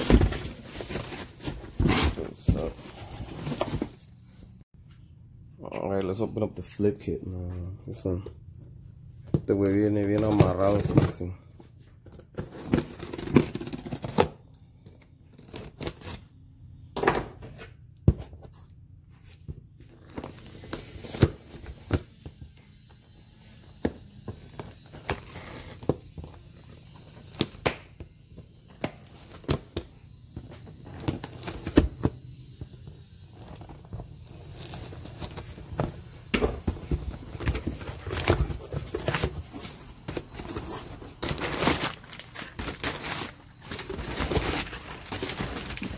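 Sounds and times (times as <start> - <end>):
packing paper crinkling: 37.2 - 45.9.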